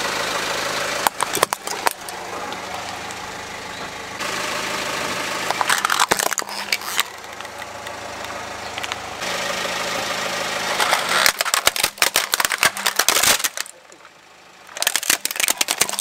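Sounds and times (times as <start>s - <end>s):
car engine idling: 0.0s - 16.0s
plastic toy crunching under tyre: 1.0s - 2.1s, 5.5s - 7.6s, 10.6s - 14.0s, 14.7s - 16.0s
loud plastic cracks: 5.5s - 7.4s, 10.7s - 13.8s, 14.7s - 16.0s.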